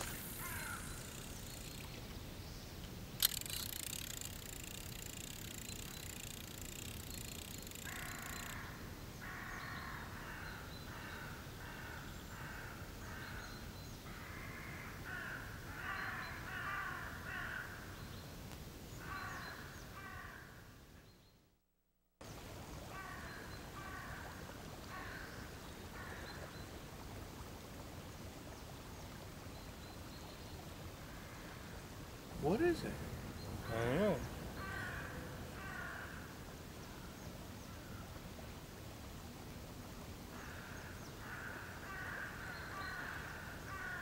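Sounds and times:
crows cawing: 0.4 - 1.0, 7.4 - 12.7, 14.2 - 17.8, 19.0 - 20.6, 24.9 - 25.3, 34.6 - 36.3, 40.3 - 44.0.

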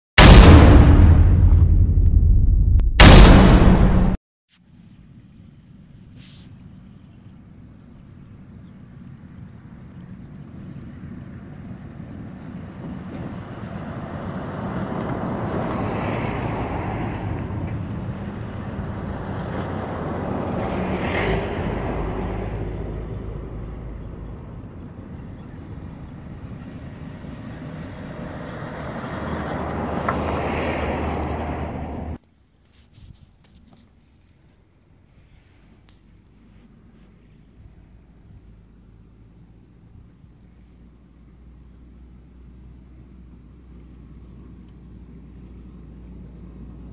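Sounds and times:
lorries driving past: 6.7 - 32.2
tyre noise on road: 10.6 - 40.2.

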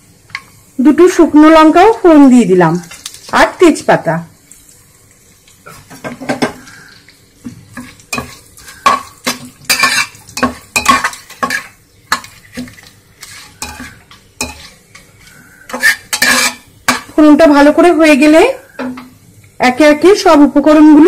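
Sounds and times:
spices sizzling in oil: 0.0 - 21.0
metal spatula scraping a pot: 7.6 - 17.2.

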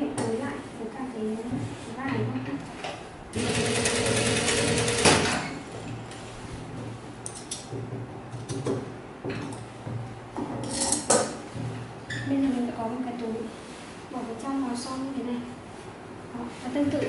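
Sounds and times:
sewing machine running: 3.3 - 5.4
sewing machine stopping knock: 3.4 - 5.3.

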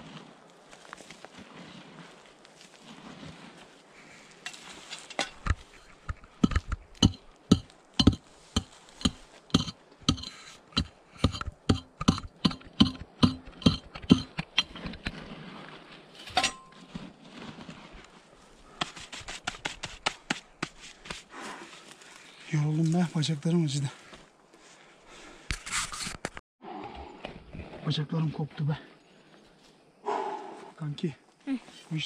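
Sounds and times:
shovel striking hard ground: 4.4 - 15.4, 16.2 - 16.9, 18.7 - 21.2
ringing shovel strike: 7.0 - 14.4, 16.3 - 16.8.

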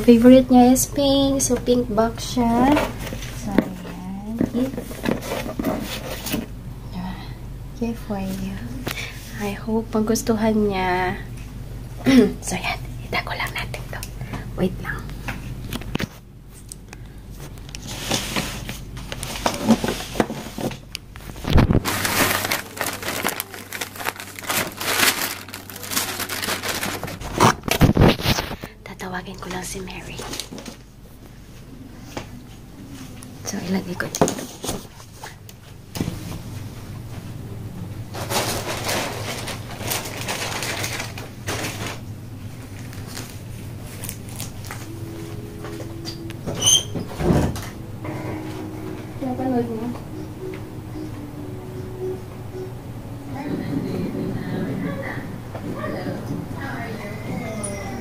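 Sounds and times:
steady low hum: 0.0 - 58.0
objects being handled: 2.6 - 6.5, 17.4 - 28.8
plastic bag crinkling: 21.2 - 28.7, 38.1 - 42.1.

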